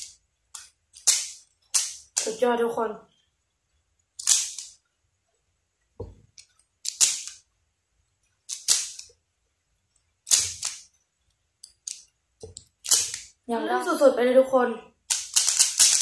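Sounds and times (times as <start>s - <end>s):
puzzle cube plastic clicking: 0.0s - 2.4s, 4.1s - 4.8s, 6.3s - 7.5s, 8.4s - 9.2s, 10.0s - 10.9s, 11.6s - 13.4s, 15.0s - 16.0s.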